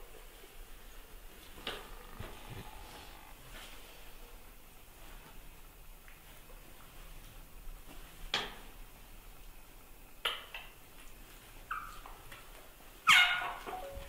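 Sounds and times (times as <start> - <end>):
baby monkey squeaks and cries: 11.7 - 12.0, 13.1 - 14.0.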